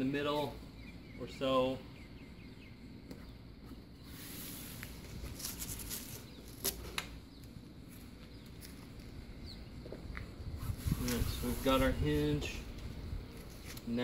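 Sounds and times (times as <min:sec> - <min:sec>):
paper and tape rustling: 0:04.3 - 0:07.1, 0:10.6 - 0:11.9, 0:12.7 - 0:13.9.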